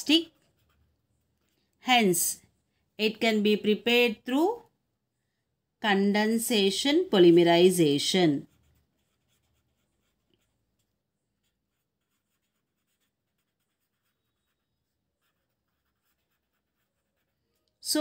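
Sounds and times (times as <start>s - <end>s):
pen scratching on paper: 0.0s - 1.5s, 8.1s - 17.6s.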